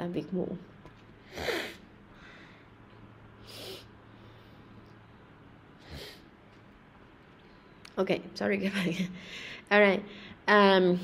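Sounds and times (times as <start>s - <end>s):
faint steady hum: 0.0s - 11.0s
woman sniffing: 1.3s - 1.8s, 3.4s - 3.9s, 5.8s - 6.3s.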